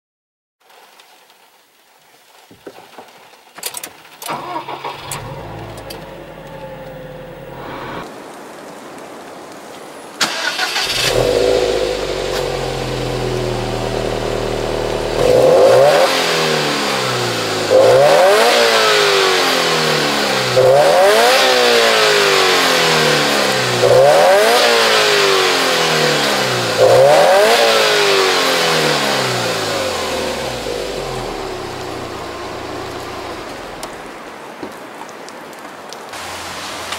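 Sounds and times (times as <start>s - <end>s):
clicks: 3.6s - 8.1s
car engine starting and idling: 4.2s - 8.1s, 10.2s - 34.2s
engine revving: 4.3s - 8.0s, 10.3s - 34.2s.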